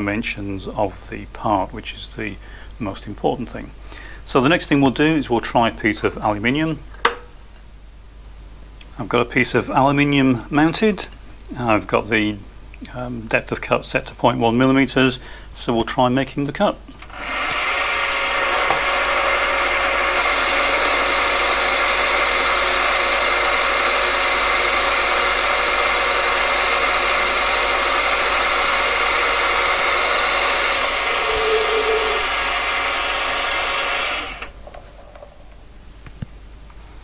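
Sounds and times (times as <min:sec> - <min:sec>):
lathe motor whine: 0:17.2 - 0:34.5.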